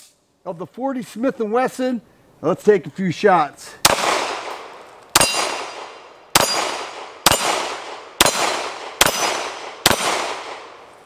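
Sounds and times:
pistol shots: 3.8s - 10.9s.

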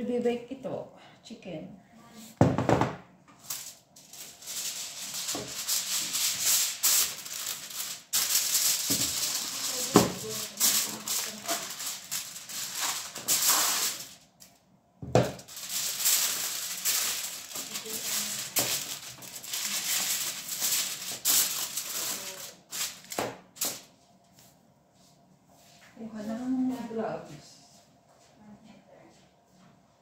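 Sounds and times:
aluminium foil crinkling: 3.4s - 14.6s, 15.2s - 24.0s.

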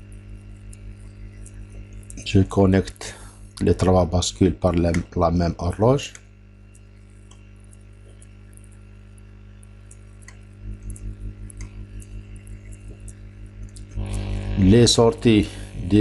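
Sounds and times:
steady electrical hum: 0.0s - 16.0s
faint mouse clicks: 6.1s - 8.8s, 9.9s - 13.9s
low pulsing tone: 10.6s - 16.0s.

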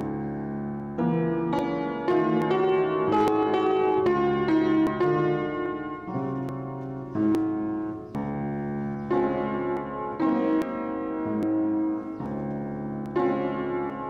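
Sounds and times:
piano chords played slowly: 0.0s - 14.0s.

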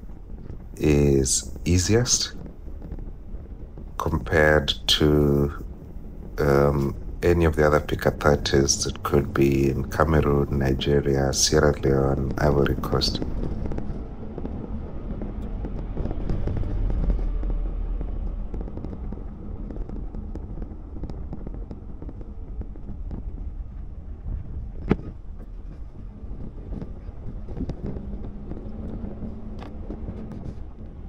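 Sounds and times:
car engine and tyre rumble: 0.0s - 31.0s.

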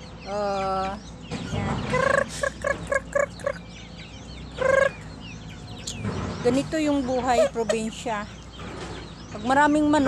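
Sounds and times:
chickens clucking: 0.0s - 10.0s
high peeps: 0.6s - 8.5s.

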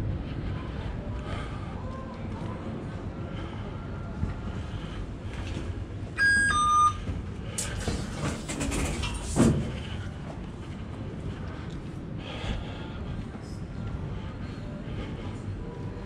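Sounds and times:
card reader beeps: 6.2s - 7.1s
turnstile clicks: 7.4s - 9.7s.

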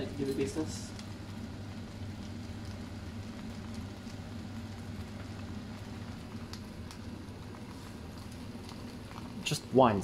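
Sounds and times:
noodles sizzling in a wok: 0.0s - 10.0s.

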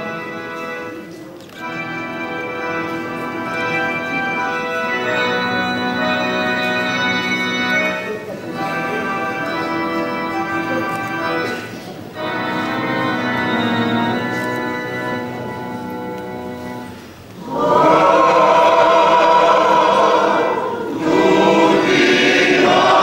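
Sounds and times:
mixed choir singing: 17.4s - 23.0s.

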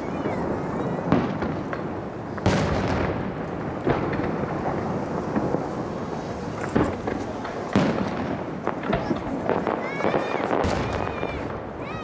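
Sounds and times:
firework shells booming: 0.0s - 11.9s.

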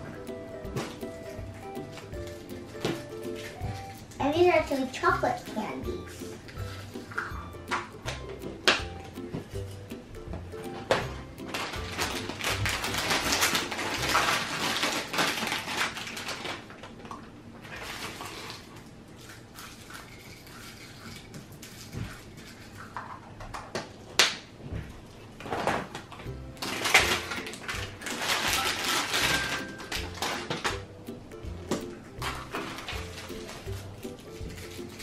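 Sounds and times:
plastic crinkling: 10.8s - 23.0s, 25.4s - 30.8s, 32.2s - 35.0s.

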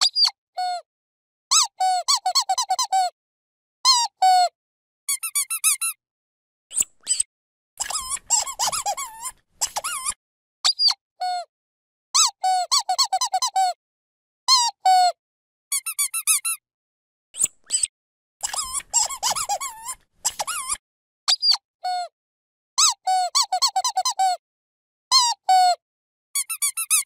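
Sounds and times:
dog squeaky toy squeaking: 1.5s - 3.1s, 5.1s - 6.0s, 7.1s - 11.0s, 12.2s - 13.8s, 15.7s - 16.6s, 17.4s - 21.6s, 22.8s - 24.4s, 26.4s - 27.0s.

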